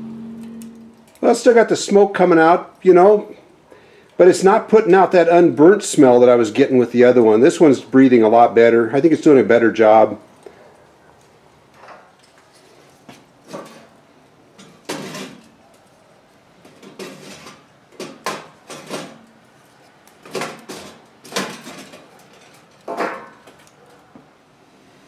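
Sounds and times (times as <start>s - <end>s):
wood sticks clattering on metal: 13.4s - 14.0s, 14.6s - 15.6s, 16.6s - 19.4s, 20.2s - 23.8s.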